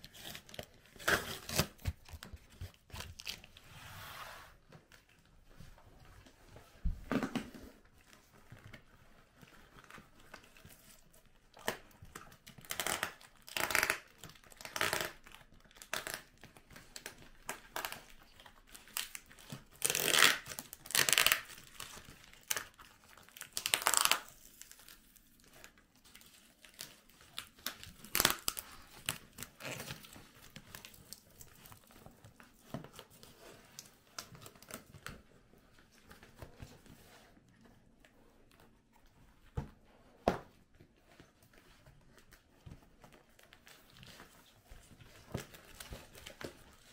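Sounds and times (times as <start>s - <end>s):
cardboard tearing and crinkling: 0.0s - 3.6s, 18.7s - 25.5s, 26.6s - 32.0s.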